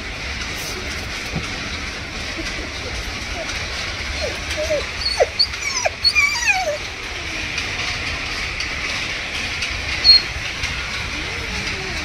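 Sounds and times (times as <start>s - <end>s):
dog whimpering: 2.9s - 7.5s, 10.0s - 10.3s.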